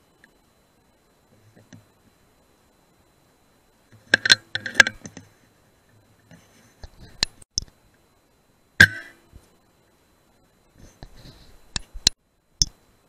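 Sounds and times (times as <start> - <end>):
sharp metallic clicks: 3.9 - 5.3, 8.8 - 9.2.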